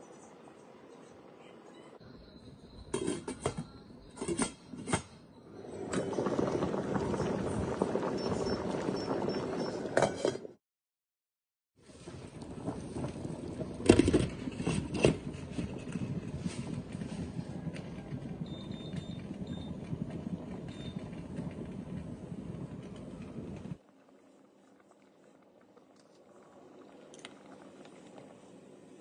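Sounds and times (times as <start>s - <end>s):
water bubbling at a boil: 5.9s - 10.0s, 11.8s - 29.0s.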